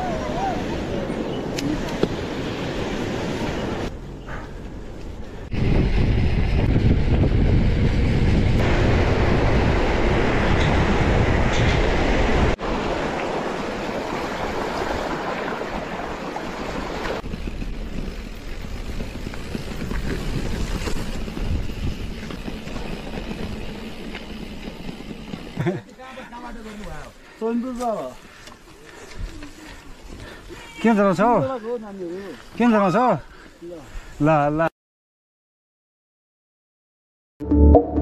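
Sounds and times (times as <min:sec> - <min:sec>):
wind buffeting microphone: 0:05.1 - 0:25.6
bike tyres rolling over gravel: 0:15.6 - 0:32.9
bike rattles and clicks: 0:17.2 - 0:32.7.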